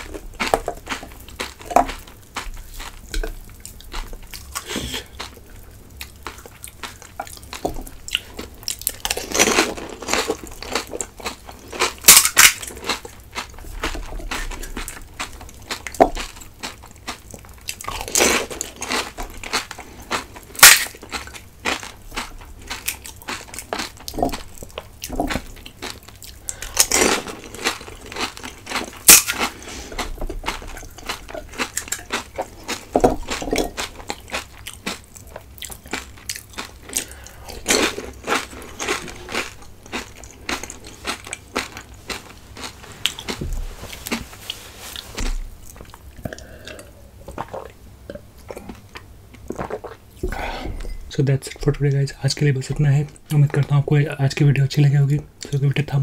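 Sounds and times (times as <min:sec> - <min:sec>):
wet chewing: 0:00.0 - 0:50.4
crunching bites: 0:06.2 - 0:44.2.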